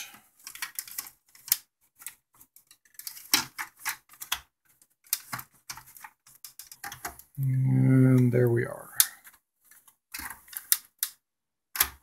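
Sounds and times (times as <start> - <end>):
plastic clicks and knocks: 0.0 - 7.4, 9.8 - 12.0.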